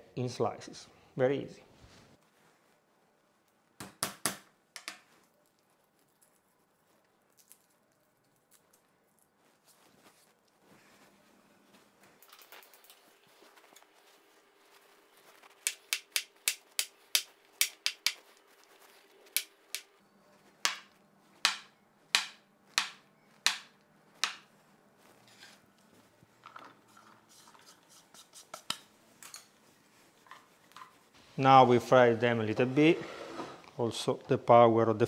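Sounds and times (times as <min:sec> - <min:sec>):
knife chopping on wooden board: 0:20.6 - 0:24.4.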